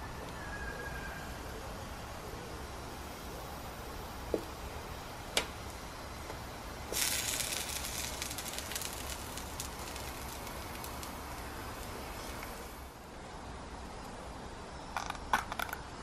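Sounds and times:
potato slices sizzling on grill: 3.7s - 13.0s.

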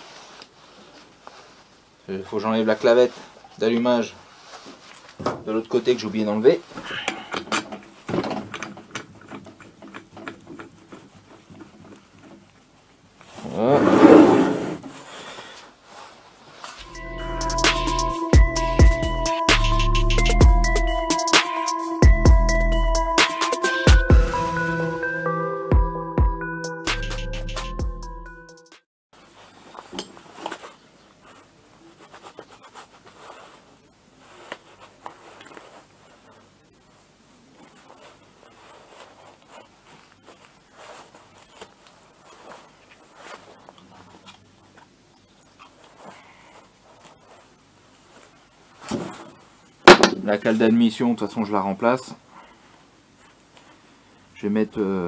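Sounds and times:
engine scraping on wood: 13.6s - 14.9s.

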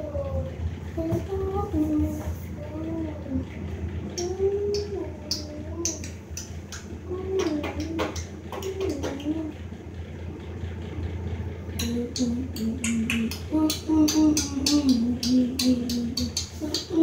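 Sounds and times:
steady low hum: 0.0s - 17.0s
person vocalizing wordlessly: 11.8s - 17.0s.

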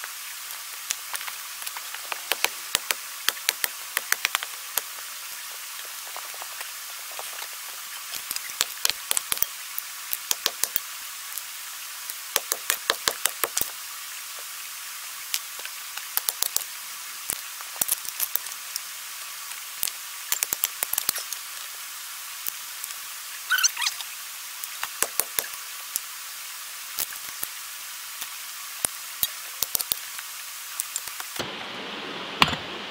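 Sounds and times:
digging tools striking rocks: 10.2s - 10.8s.

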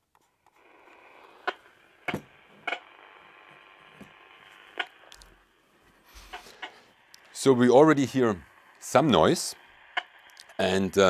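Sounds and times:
radio static hiss: 0.3s - 11.0s
sharp clicks: 1.4s - 5.5s, 6.3s - 7.4s, 8.1s - 10.7s.

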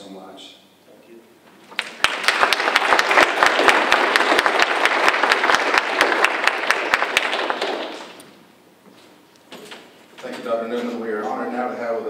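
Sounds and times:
audience applauding: 1.7s - 8.2s.

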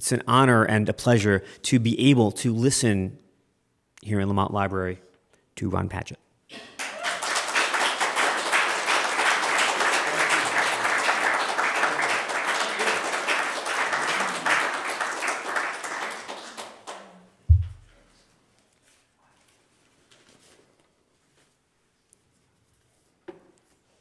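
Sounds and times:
audience applauding: 6.6s - 17.3s
sharp low thump: 17.5s - 17.9s.

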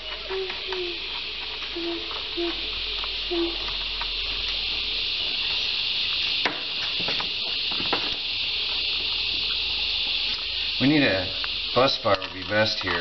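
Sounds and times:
high hiss: 0.0s - 13.0s.

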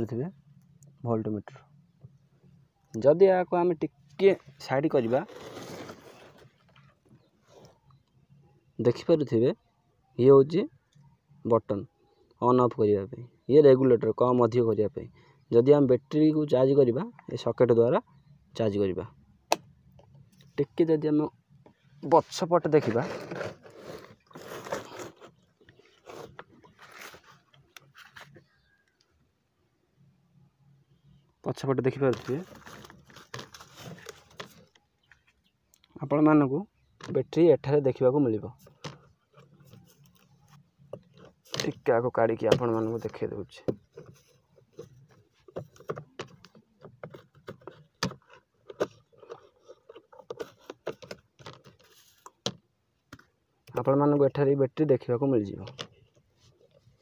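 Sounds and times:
strap rustling against plastic tank: 21.6s - 28.7s, 32.1s - 35.5s, 38.5s - 53.9s.

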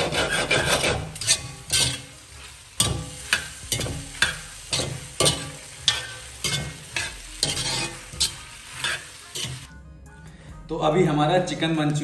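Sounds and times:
food sizzling in wok: 0.0s - 9.7s
steel ladle clanking in wok: 0.3s - 2.2s, 2.8s - 9.7s.

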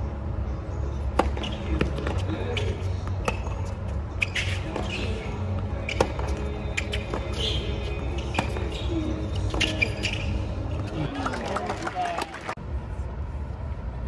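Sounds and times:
steady low hum: 0.0s - 11.0s
tennis ball struck with rackets: 5.9s - 9.8s.

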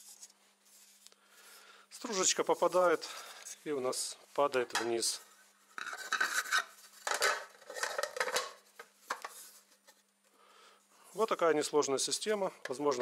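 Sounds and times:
plastic parts knocking and scraping: 5.8s - 9.5s.

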